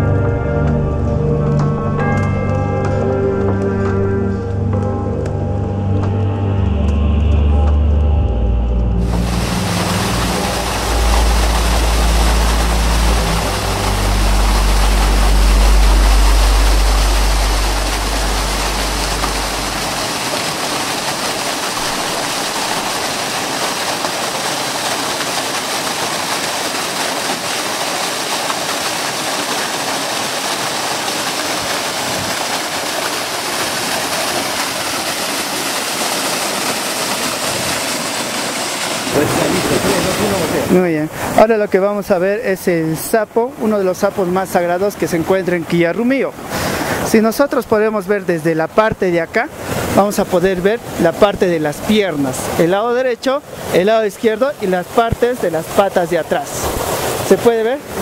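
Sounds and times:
deep low rumble: 3.3s - 20.6s
loud rushing noise: 8.9s - 23.2s, 33.2s - 41.4s.

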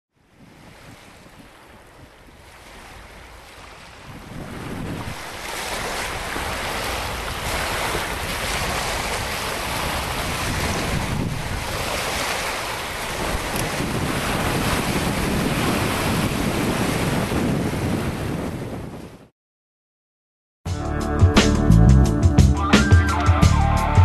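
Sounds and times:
water rushing past a boat: 0.1s - 19.3s
wind buffeting microphone: 0.3s - 19.3s.

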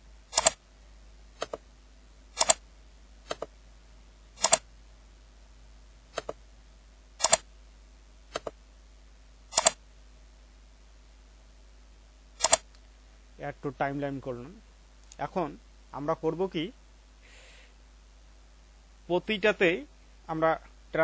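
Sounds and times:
computer mouse clicking: 0.4s - 0.6s, 1.4s - 1.6s, 2.4s - 2.6s, 3.3s - 3.5s, 4.4s - 4.6s, 6.1s - 6.4s, 7.2s - 7.4s, 8.3s - 8.6s, 9.5s - 9.8s, 12.4s - 12.8s.

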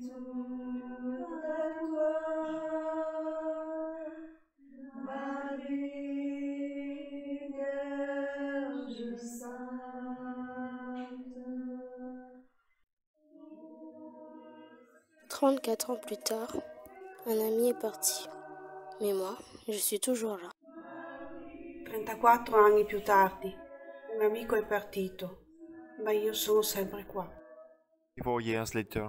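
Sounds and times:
person singing chant-like melody: 13.4s - 19.7s, 20.6s - 27.5s.

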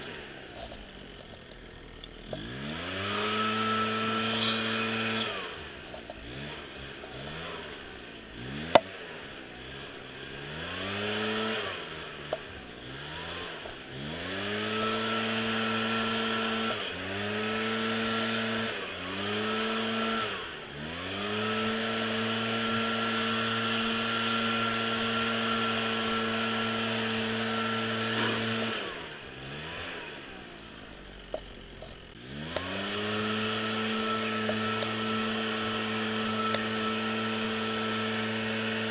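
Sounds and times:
string trimmer engine revving: 0.0s - 38.9s.

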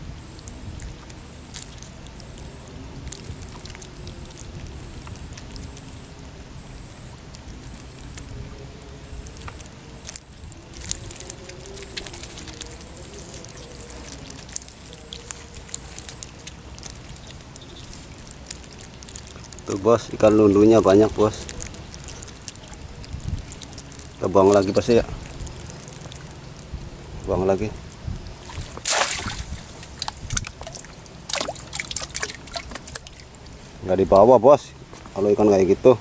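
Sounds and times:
faint high-pitched chirp: 0.2s - 18.8s, 21.3s - 28.5s
fish flapping on wet mud: 0.4s - 5.9s, 9.2s - 26.7s, 28.3s - 33.6s.

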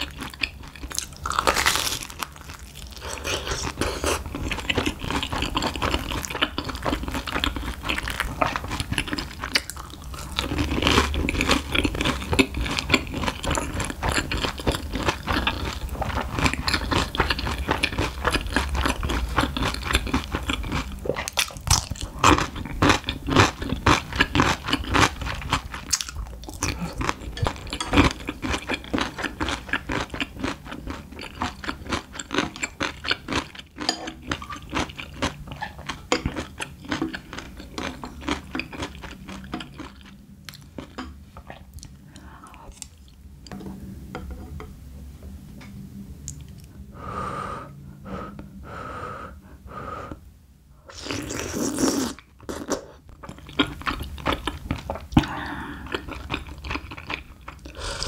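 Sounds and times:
crunching and chewing food: 0.0s - 43.3s, 50.9s - 58.0s.

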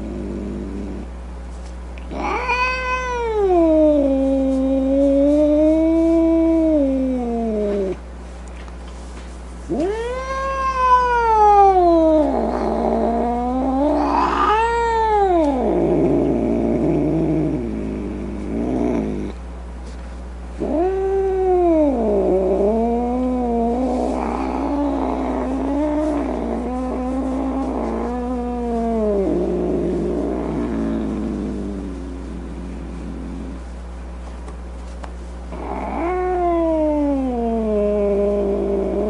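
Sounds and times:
cat yowling: 2.1s - 7.5s, 9.7s - 15.8s, 35.6s - 39.0s.

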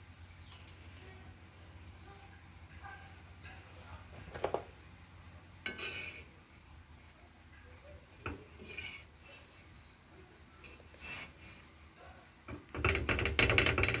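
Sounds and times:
metal spoon scraping a griddle: 5.6s - 6.4s, 8.2s - 9.6s, 10.6s - 11.6s.

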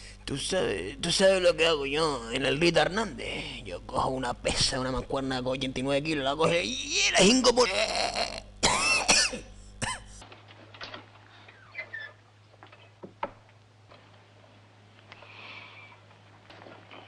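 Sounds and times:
low steady hum: 0.0s - 17.0s
faint clicks and knocks: 10.2s - 15.3s, 16.0s - 17.0s.

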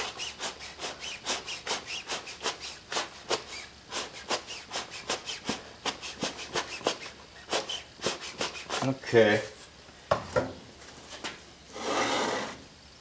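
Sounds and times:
quick puffs of blown air: 0.0s - 8.9s.

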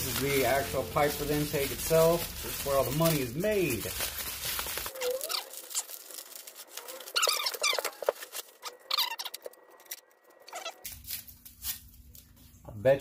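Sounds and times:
plastic wrapping crinkling: 0.0s - 12.5s
plastic squeaking on plastic: 4.5s - 10.9s.

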